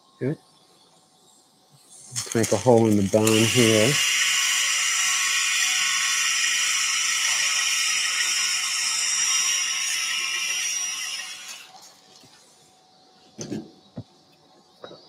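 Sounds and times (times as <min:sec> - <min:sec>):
surgical wire driver whining: 0:02.0 - 0:11.7.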